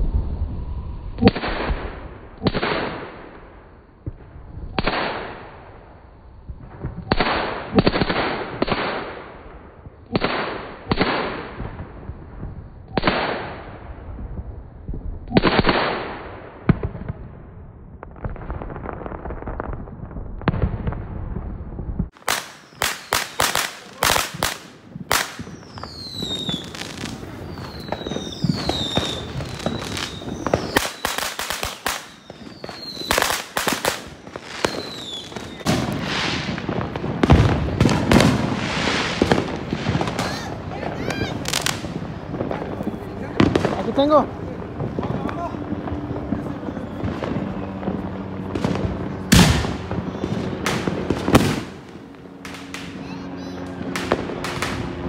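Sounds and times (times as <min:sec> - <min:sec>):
falling firework whistles: 0:00.0 - 0:03.2, 0:20.7 - 0:44.2, 0:44.8 - 0:54.9
crackling pops: 0:21.9 - 0:38.4
firecracker bangs with echo: 0:22.1 - 0:55.0.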